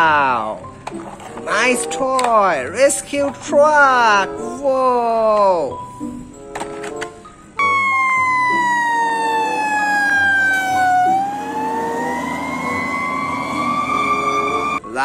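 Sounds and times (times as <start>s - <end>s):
fire truck siren wailing: 7.6s - 14.8s.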